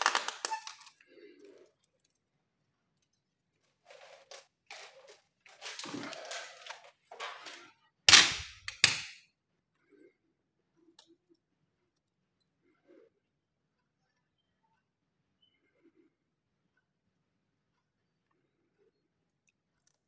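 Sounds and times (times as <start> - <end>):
rustling and scraping of fruit husk: 3.7 - 7.7.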